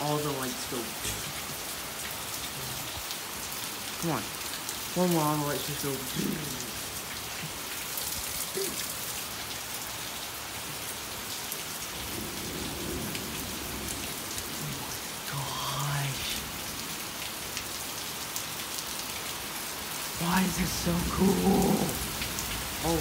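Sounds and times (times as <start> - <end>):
heavy rain pattering: 0.0 - 23.0
thunder rumbling: 20.2 - 23.0.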